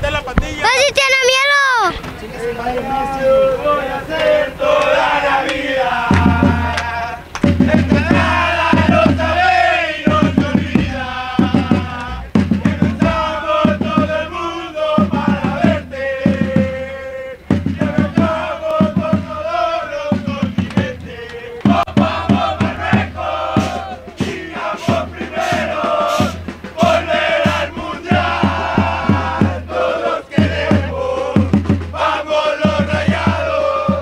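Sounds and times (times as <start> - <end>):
supporters chanting in unison: 0.6 - 34.0
bass drum beating: 10.1 - 14.2, 20.1 - 25.1.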